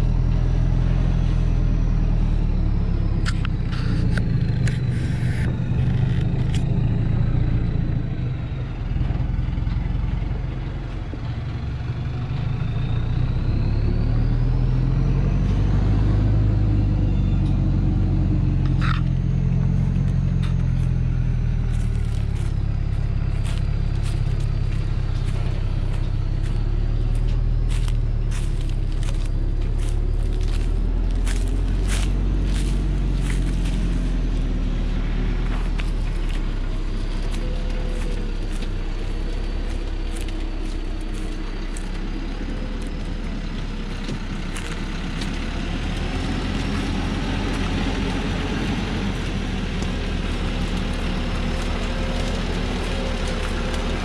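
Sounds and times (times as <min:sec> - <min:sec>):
high whine gliding up and down: 0:00.0 - 0:08.9
truck diesel engine labouring: 0:00.0 - 0:54.0.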